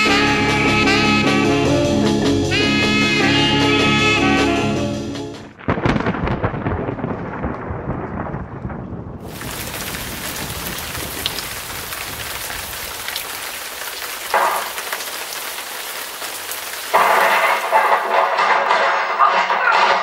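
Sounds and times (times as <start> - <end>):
thunder rumbling: 0.1 - 18.8
heavy rain hissing: 9.2 - 18.7.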